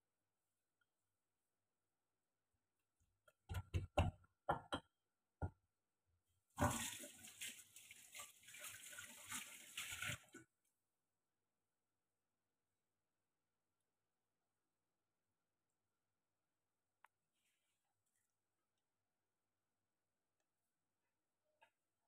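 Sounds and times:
tap running water into sink: 6.6 - 10.5.

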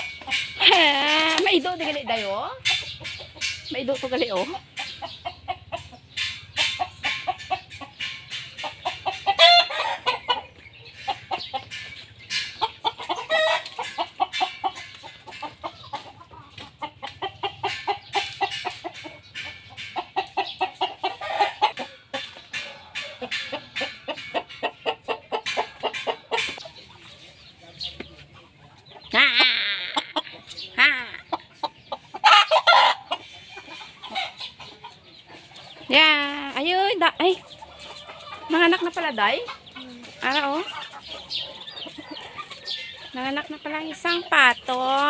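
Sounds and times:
chickens clucking: 0.0 - 45.0
chicken drawn-out call: 5.1 - 26.6, 32.1 - 35.6.

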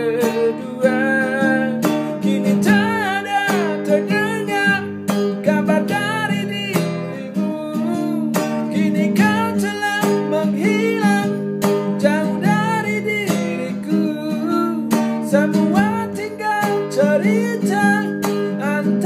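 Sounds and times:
acoustic guitar strumming: 0.0 - 19.0
man singing a slow ballad: 0.0 - 19.0.

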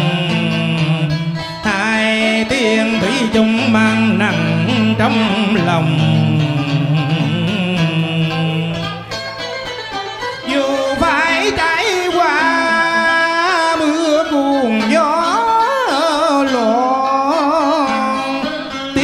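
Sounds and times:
man singing with vibrato: 0.0 - 9.6, 10.2 - 19.0
plucked guitar and lute: 0.0 - 19.0
sustained low notes: 3.4 - 9.0.

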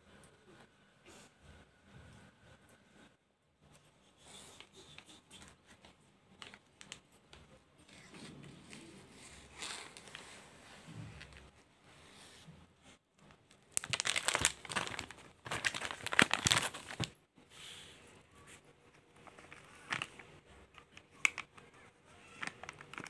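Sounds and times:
plastic packet crinkling: 13.2 - 17.2, 19.3 - 23.0.

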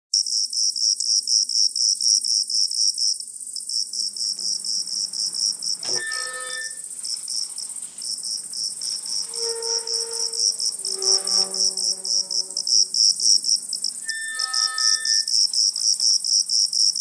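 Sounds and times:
insects chirping rhythmically: 0.2 - 17.0
steady high buzz: 3.6 - 15.8
bell-like ringing strike: 5.8 - 6.8.

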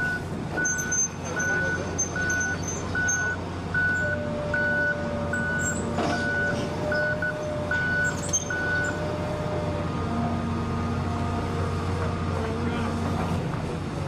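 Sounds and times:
backup alarm beeping: 0.0 - 9.1.

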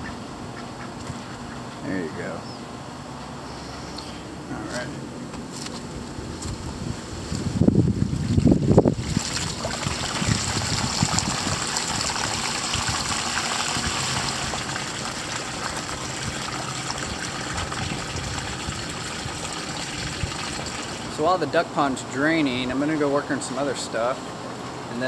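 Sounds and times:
water trickling: 7.9 - 21.3.

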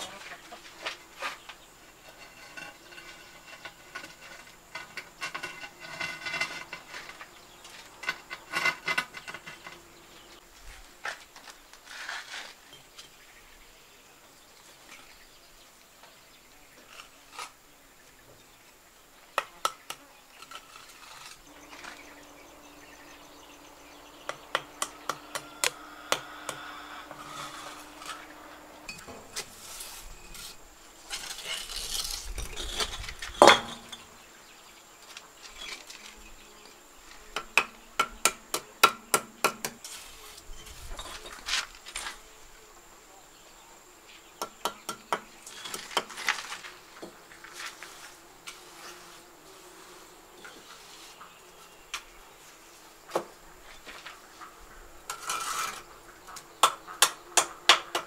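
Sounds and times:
trowel scraping mortar: 0.0 - 10.3, 11.8 - 12.7, 16.8 - 17.6, 19.6 - 34.1, 39.6 - 42.3, 45.0 - 46.8, 47.4 - 50.0, 55.1 - 56.4
faint insect buzz: 0.0 - 58.0
trowel tapping bricks: 24.3 - 28.2, 37.4 - 39.9.

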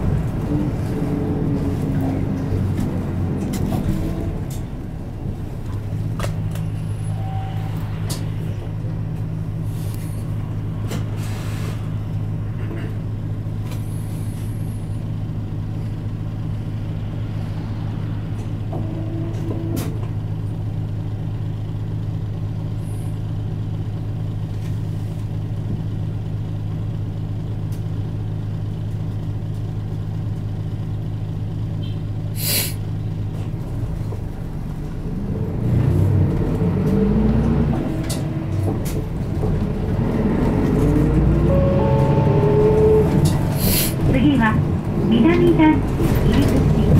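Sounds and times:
bus diesel engine idling: 0.0 - 46.9
hiss of air: 32.4 - 32.8, 43.6 - 44.0.

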